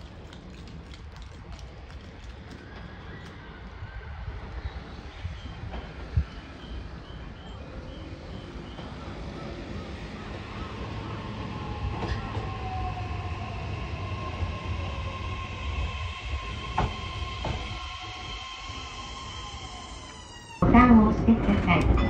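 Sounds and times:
electric train rumble: 0:00.0 - 0:22.0.

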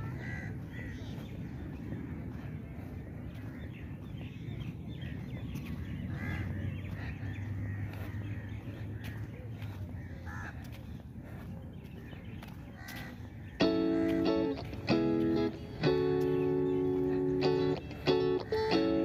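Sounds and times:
crows cawing: 0:00.0 - 0:01.6, 0:06.1 - 0:11.4, 0:12.8 - 0:19.0
steady low rumble: 0:00.0 - 0:19.0.

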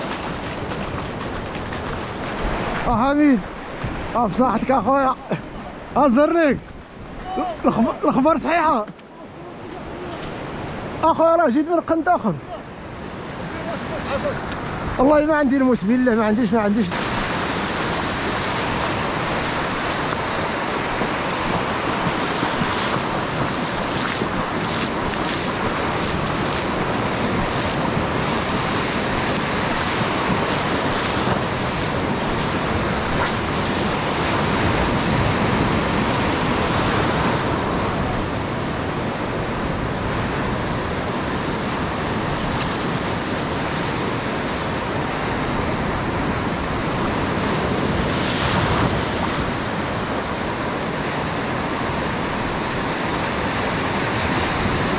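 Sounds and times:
sea surf breaking: 0:00.0 - 0:54.9
wind on microphone: 0:16.8 - 0:54.9.

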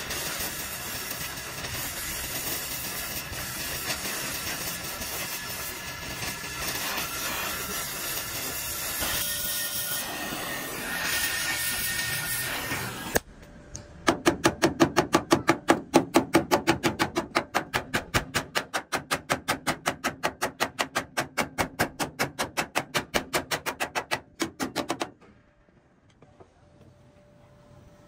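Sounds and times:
hammer beating sheet metal: 0:14.0 - 0:25.1.

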